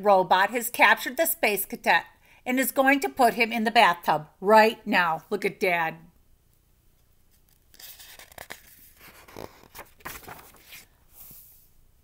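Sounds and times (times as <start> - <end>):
book pages rustling: 7.3 - 11.7.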